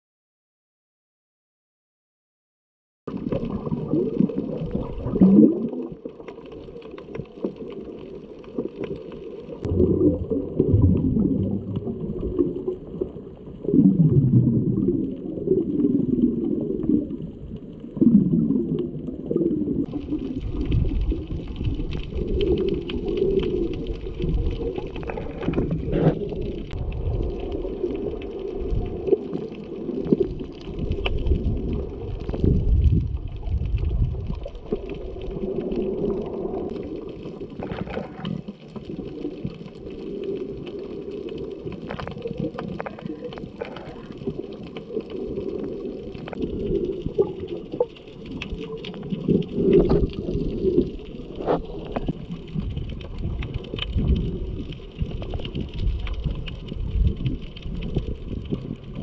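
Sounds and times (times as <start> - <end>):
muffled underwater water noise: 3.1 - 59.0
faint clicks: 16.8 - 59.0.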